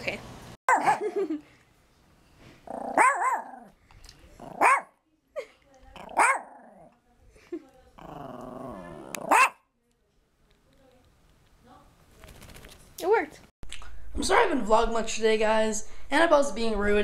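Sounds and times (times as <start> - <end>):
small dog barking: 0.7 - 1.1, 2.8 - 3.7, 4.5 - 5.0, 6.0 - 6.7, 9.1 - 9.6
dog growling: 2.6 - 3.8, 4.4 - 4.8, 5.9 - 7.0, 8.0 - 9.5.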